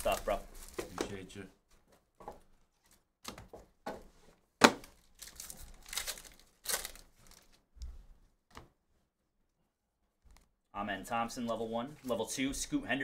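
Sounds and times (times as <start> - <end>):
foil wrapper tearing and crinkling: 5.1 - 7.5.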